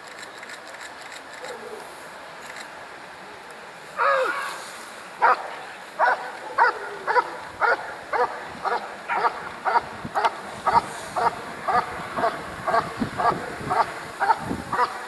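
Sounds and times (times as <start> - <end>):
dog barking sharply: 5.2 - 15.0.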